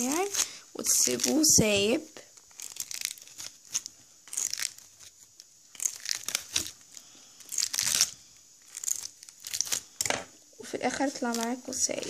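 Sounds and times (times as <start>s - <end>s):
doll hair being combed: 0.0s - 2.0s, 10.6s - 12.0s.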